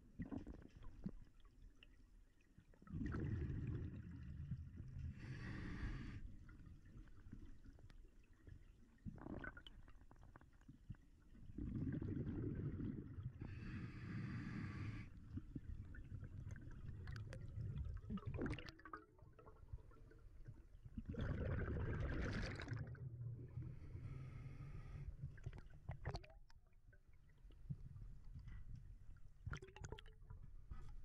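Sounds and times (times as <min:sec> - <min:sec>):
low rumble of water: 0:00.0 - 0:31.0
exhaled bubbles rushing: 0:02.9 - 0:04.3, 0:11.6 - 0:13.3, 0:16.2 - 0:19.7, 0:21.0 - 0:23.8
regulator hissing inhale: 0:05.2 - 0:06.2, 0:13.5 - 0:15.2, 0:24.0 - 0:25.2.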